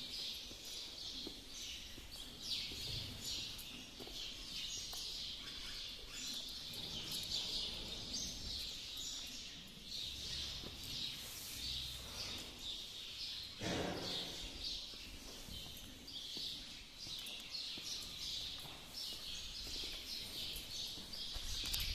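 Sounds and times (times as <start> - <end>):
small birds chirping: 0.0 - 21.9.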